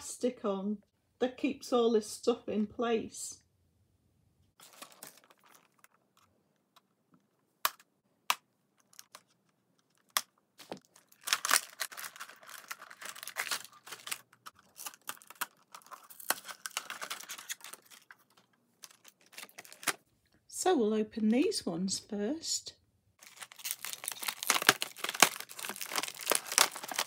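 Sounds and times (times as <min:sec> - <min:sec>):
plastic packaging crinkling: 0:04.6 - 0:06.3, 0:08.9 - 0:20.0, 0:23.2 - 0:27.0.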